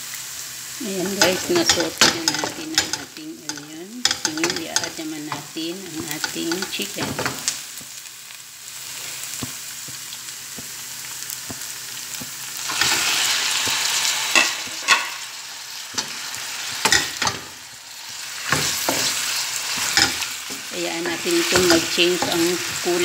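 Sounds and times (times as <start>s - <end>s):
chicken sizzling in hot oil: 0.0s - 23.0s.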